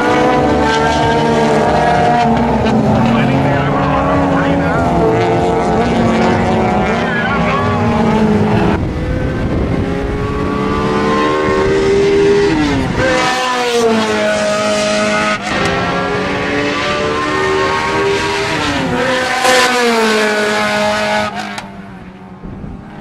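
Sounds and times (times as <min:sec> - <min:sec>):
race car engines at full throttle: 0:00.0 - 0:23.0.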